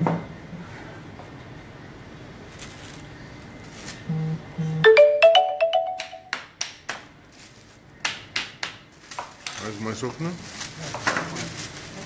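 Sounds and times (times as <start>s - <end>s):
electronic ringtone jingle: 4.8s - 6.3s.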